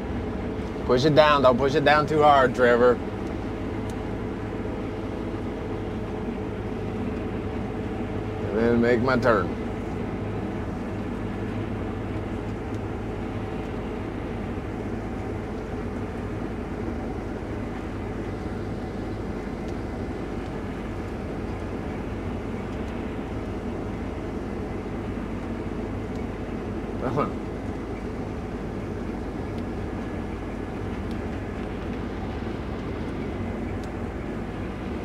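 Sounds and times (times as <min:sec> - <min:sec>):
combine harvester running: 0:00.0 - 0:35.0.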